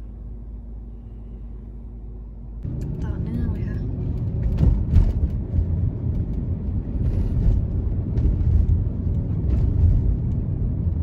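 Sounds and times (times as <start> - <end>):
road and engine rumble in car: 0.0 - 11.0.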